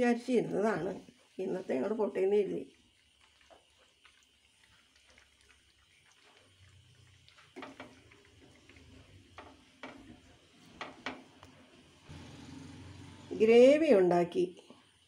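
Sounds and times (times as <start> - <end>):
wooden spatula scraping pan: 9.4 - 11.3.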